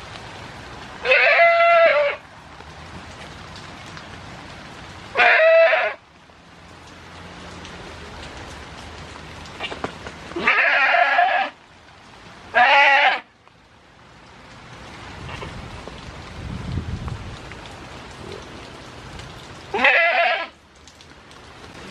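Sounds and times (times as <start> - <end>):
rain hissing: 0.0 - 21.9
goat bleating: 1.0 - 2.2, 5.2 - 6.0, 10.4 - 11.6, 12.5 - 13.3, 19.7 - 20.6.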